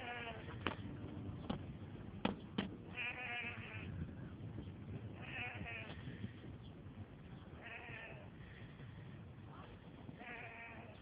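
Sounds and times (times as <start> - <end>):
sheep bleating: 0.0 - 0.5, 2.9 - 3.9, 7.6 - 8.3, 10.2 - 11.0.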